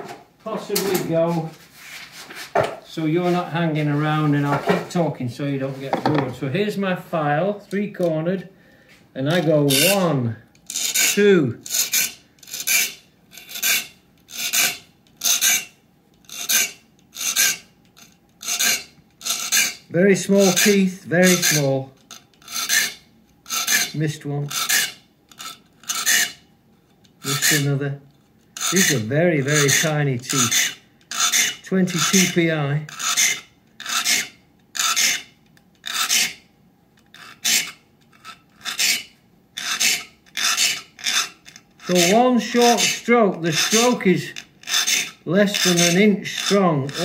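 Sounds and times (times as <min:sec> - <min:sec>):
file rasping on saw teeth: 0:09.3 - 0:10.1, 0:10.7 - 0:26.4, 0:27.2 - 0:27.8, 0:28.6 - 0:36.4, 0:37.1 - 0:47.0.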